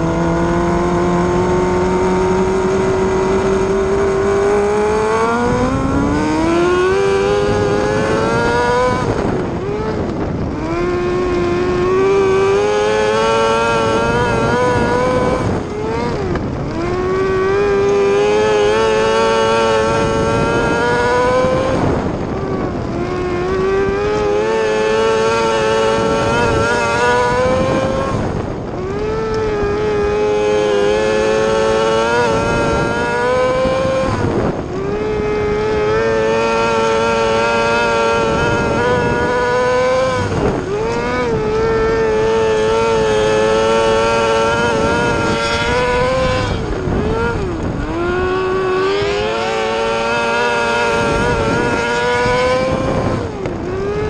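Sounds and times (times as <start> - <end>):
racing engine accelerating and slowing: 0.0 - 54.0.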